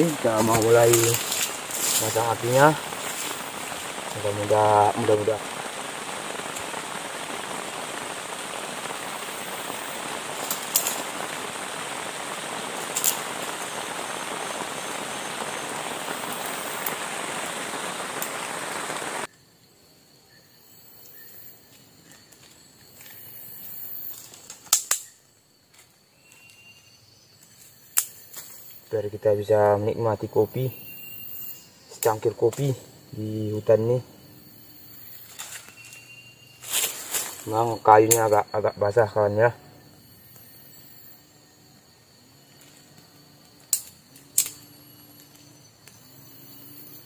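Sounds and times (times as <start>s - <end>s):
rain hissing: 0.0s - 19.3s, 22.8s - 25.2s, 26.8s - 47.0s
sharp snaps: 24.4s - 25.2s.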